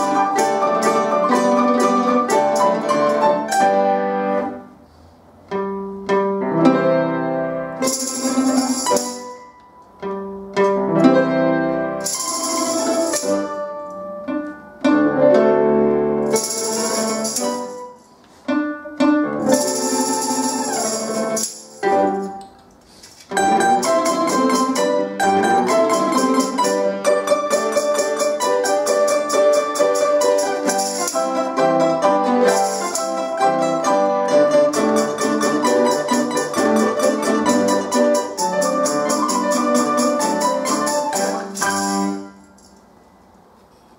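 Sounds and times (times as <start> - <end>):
plucked string ensemble with piano: 0.0 - 4.8, 5.4 - 22.6, 23.3 - 42.7
tambourine jingles: 7.8 - 9.5, 12.0 - 13.7, 16.2 - 18.2, 19.5 - 25.1, 25.7 - 31.6, 32.4 - 33.4, 34.7 - 42.9.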